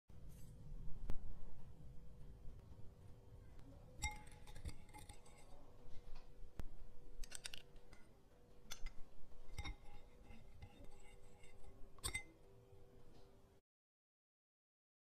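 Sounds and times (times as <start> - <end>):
spoon clinking against glass bowl: 4.0 - 5.6, 8.7 - 12.5
spoon tapping ceramic bowl: 4.0 - 5.6, 8.7 - 12.4.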